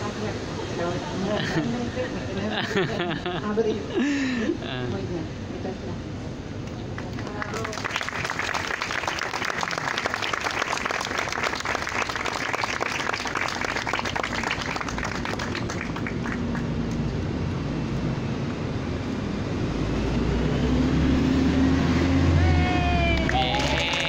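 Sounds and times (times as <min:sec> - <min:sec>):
crowd applauding: 0:07.0 - 0:17.0, 0:22.4 - 0:24.0.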